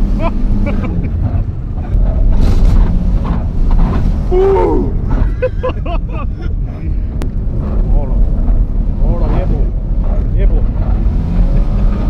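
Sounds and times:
car engine and road rumble: 0.0 - 12.0
passenger exclaiming: 4.2 - 7.2.

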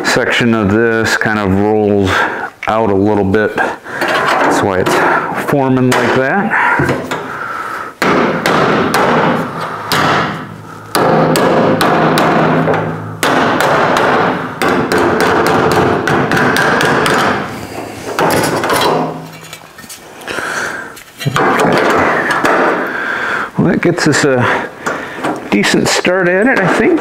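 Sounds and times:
hammer on sheet steel: 8.0 - 17.5.

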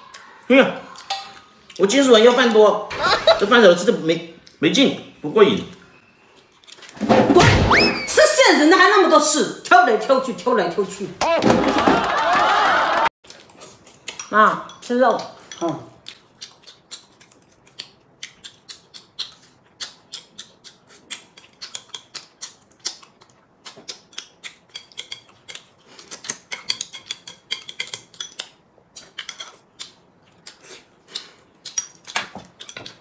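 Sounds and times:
chewing and mouth smacks: 13.2 - 14.3, 15.2 - 33.0
chopsticks clicking on bowls: 23.9 - 33.0.

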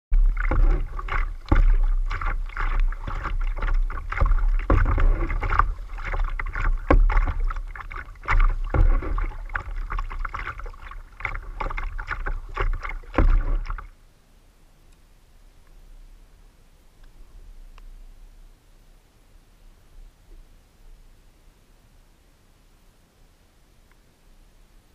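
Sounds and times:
water slapping against hull: 0.1 - 13.9
paddle dipping and splashing: 0.1 - 14.0
steady low rumble: 0.1 - 14.3.

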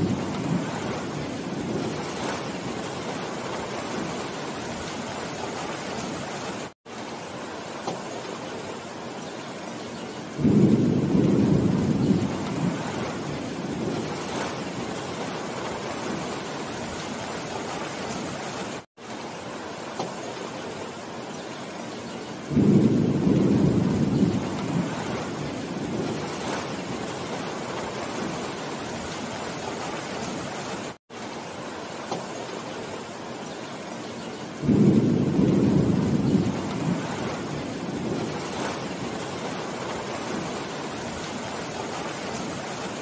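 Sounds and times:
low rumble of thunder: 0.0 - 4.2, 10.4 - 16.4, 22.5 - 28.5, 34.6 - 41.0
rain falling on leafy trees: 0.0 - 43.0.

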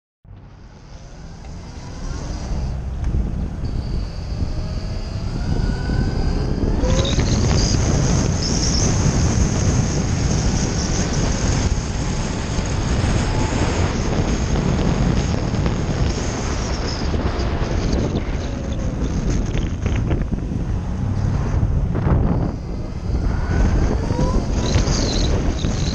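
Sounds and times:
dirt bike engine accelerating: 0.3 - 25.9
wind noise on microphone: 0.3 - 25.9.

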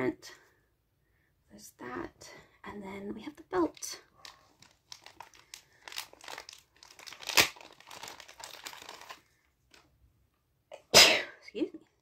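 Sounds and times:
plastic bag crinkling: 3.7 - 9.9.

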